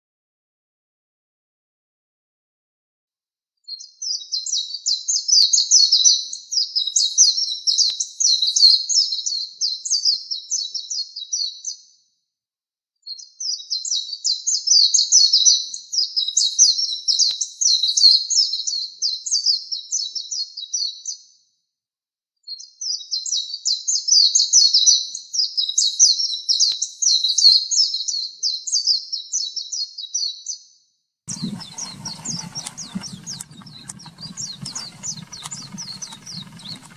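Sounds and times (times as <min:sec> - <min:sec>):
bird twittering warbles: 0:31.3 - 0:36.9.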